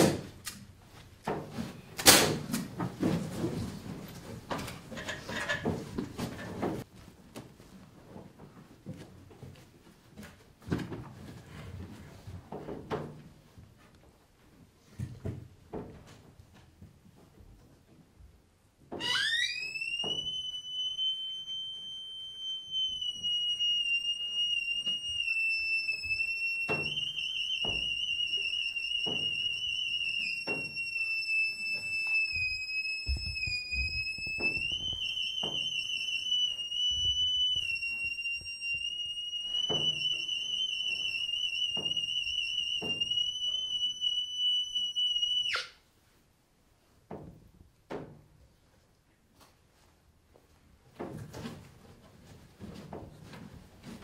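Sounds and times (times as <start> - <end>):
high piercing tone: 19.0 - 45.8.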